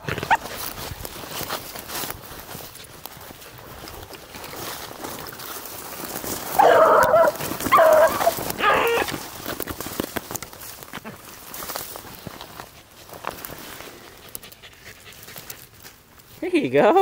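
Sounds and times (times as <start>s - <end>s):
dog baying: 6.5s - 9.2s.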